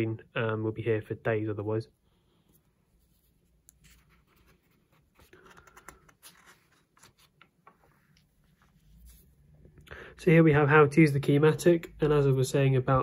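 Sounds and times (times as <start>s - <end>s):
paper pages rustling: 3.0s - 9.5s.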